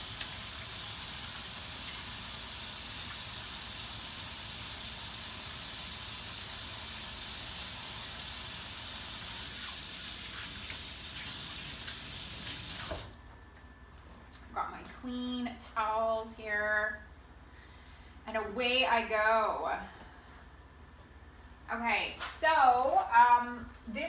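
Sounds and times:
faucet running into sink: 0.0 - 13.2.

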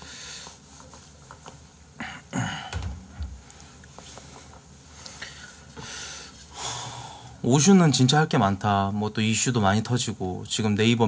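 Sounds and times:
person breathing out: 5.2 - 7.4.

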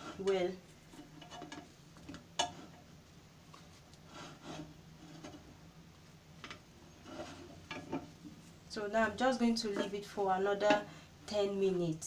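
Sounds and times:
spatula scraping a griddle pan: 4.1 - 5.4, 7.0 - 8.1.

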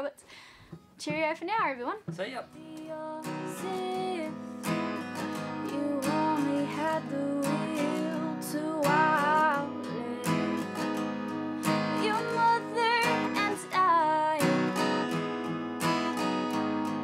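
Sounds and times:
strummed acoustic guitar: 0.8 - 17.0
person singing: 2.6 - 4.6, 5.4 - 11.0, 11.6 - 15.0.

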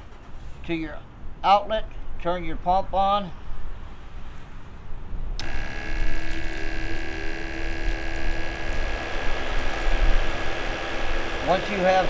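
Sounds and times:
pump humming and whining: 5.4 - 12.0.

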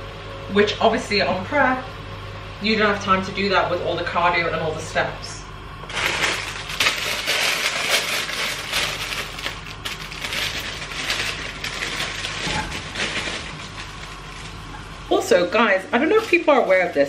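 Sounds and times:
plastic bag crinkling: 5.8 - 14.9, 15.8 - 17.0.

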